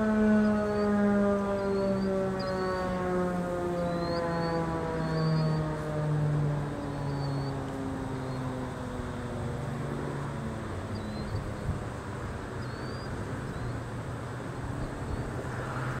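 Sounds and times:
siren winding down: 0:00.0 - 0:11.8
high bird chirps: 0:01.6 - 0:03.0, 0:03.8 - 0:05.6, 0:06.8 - 0:07.6, 0:10.9 - 0:11.7, 0:12.6 - 0:13.8.

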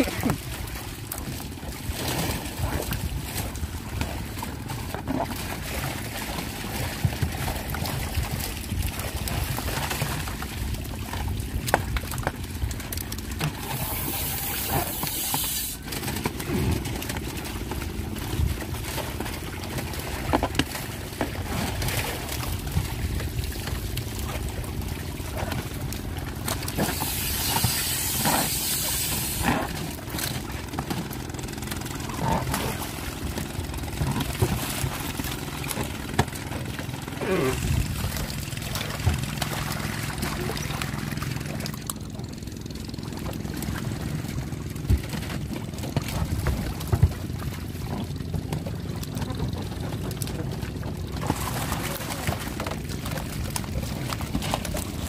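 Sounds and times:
motor humming: 0:25.6 - 0:49.7.

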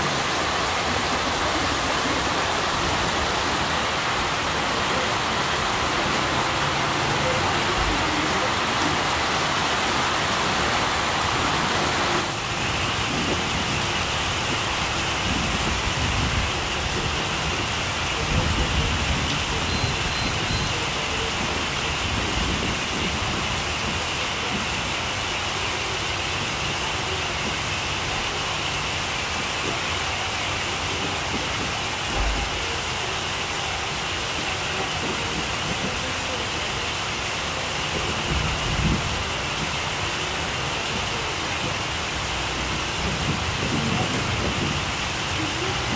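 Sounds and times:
heavy rain pouring: 0:00.0 - 0:45.9.

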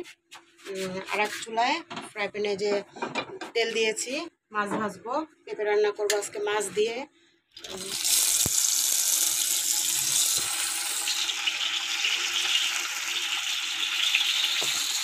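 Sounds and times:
fish sizzling in hot oil: 0:07.6 - 0:15.0.

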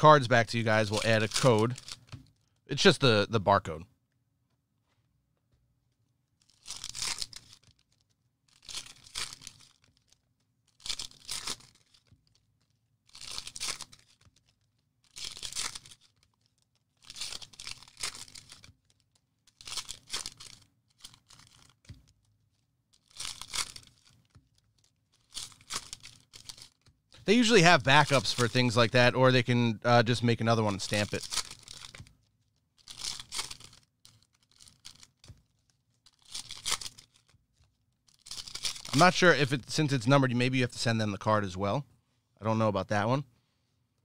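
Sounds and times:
card pack wrappers ripping: 0:00.2 - 0:02.8, 0:06.4 - 0:12.5, 0:13.1 - 0:22.1, 0:23.0 - 0:29.5, 0:30.1 - 0:32.2, 0:32.8 - 0:37.3, 0:38.1 - 0:39.2
wrapper crinkling: 0:00.5 - 0:02.6, 0:06.4 - 0:29.0, 0:30.1 - 0:39.2.

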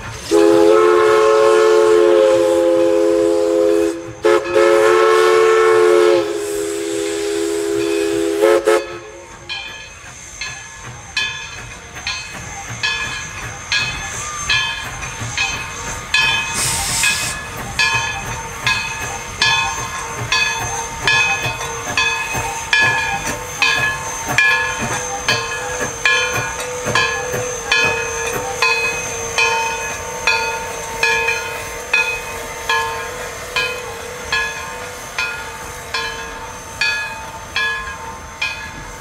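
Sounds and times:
steam hiss: 0:00.0 - 0:39.0
locomotive bell ringing: 0:07.8 - 0:08.2, 0:08.8 - 0:39.0.

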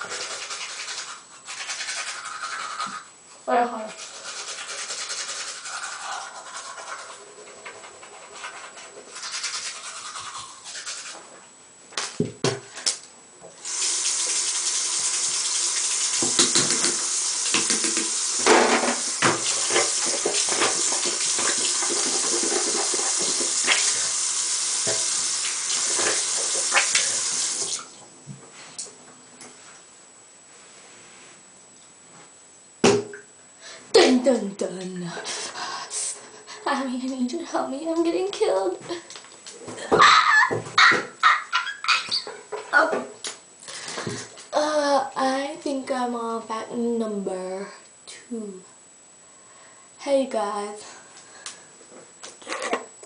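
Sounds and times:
toothbrush scrubbing teeth: 0:00.0 - 0:11.2, 0:19.0 - 0:25.2
tap running into sink: 0:16.1 - 0:23.9, 0:24.8 - 0:27.8.

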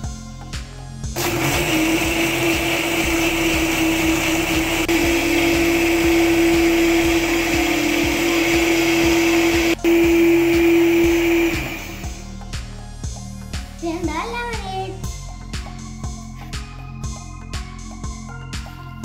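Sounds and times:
blender motor whine: 0:01.2 - 0:12.2.

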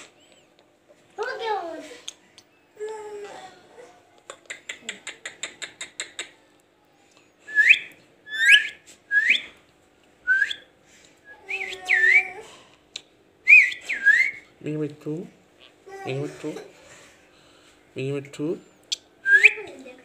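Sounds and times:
parakeet whistling chirps: 0:07.5 - 0:09.5, 0:13.5 - 0:14.4, 0:18.9 - 0:19.6.

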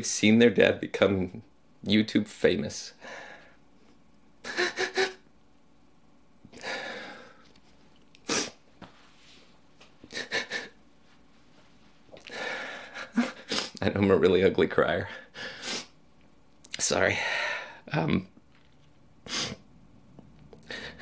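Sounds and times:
man sobbing: 0:04.4 - 0:05.3, 0:10.0 - 0:10.8, 0:12.3 - 0:13.8, 0:20.6 - 0:21.0.

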